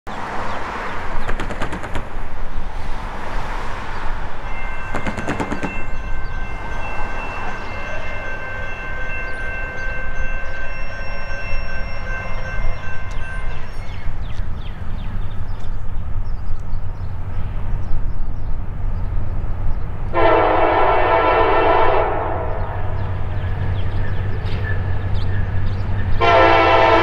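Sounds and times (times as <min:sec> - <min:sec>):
rapid clicking: 0:01.2 - 0:02.2
distant locomotive air horn: 0:04.6 - 0:14.0, 0:20.1 - 0:23.0, 0:26.2 - 0:27.0.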